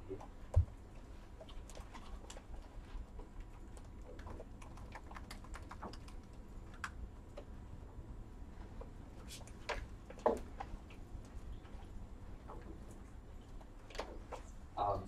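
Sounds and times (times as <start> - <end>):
laptop keyboard typing: 0.0 - 7.5.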